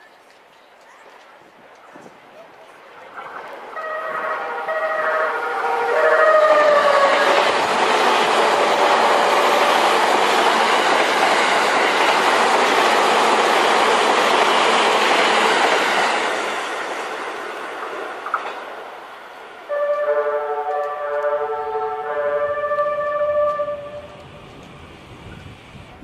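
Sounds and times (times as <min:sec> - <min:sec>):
train running over rails: 0:01.5 - 0:26.0
train music horn: 0:03.7 - 0:10.1, 0:19.7 - 0:24.3.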